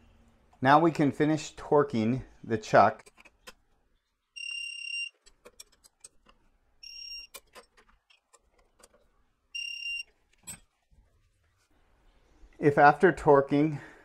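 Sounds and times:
torque wrench beeping: 4.4 - 5.2, 6.8 - 7.4, 9.5 - 10.1.

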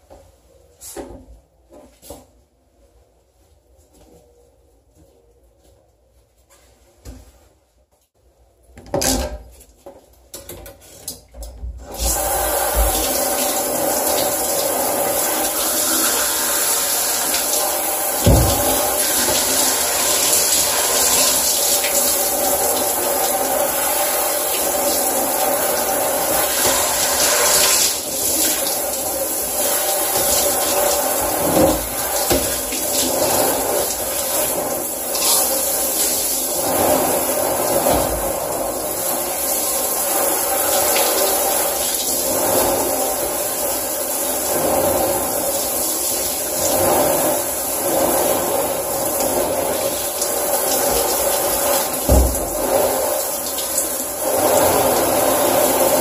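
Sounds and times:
shower spray running water: 11.8 - 56.0.

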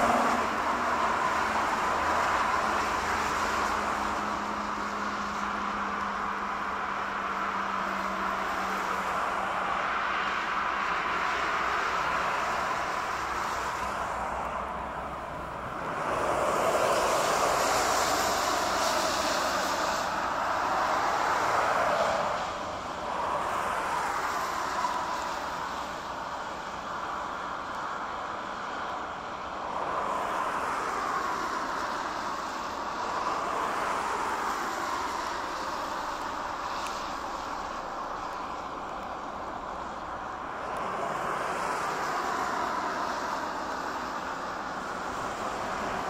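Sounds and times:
jet engines rushing: 11.1 - 25.6.

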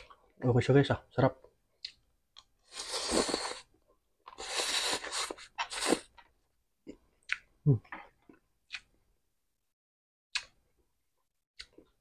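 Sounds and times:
open-mouthed chewing: 1.8 - 9.0
slurping noodles: 2.6 - 6.2.

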